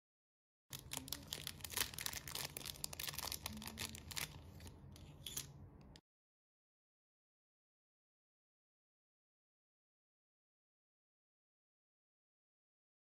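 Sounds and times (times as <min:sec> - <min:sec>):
plastic bag crinkling: 0:00.7 - 0:05.5.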